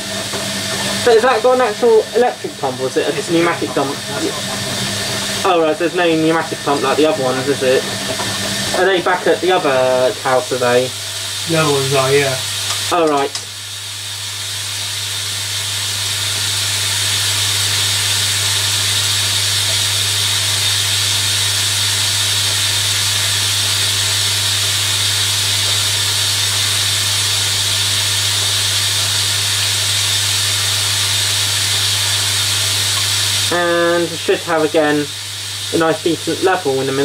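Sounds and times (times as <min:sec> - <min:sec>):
low hum: 0:00.0 - 0:12.8
water rushing into washing machine: 0:00.0 - 0:37.0.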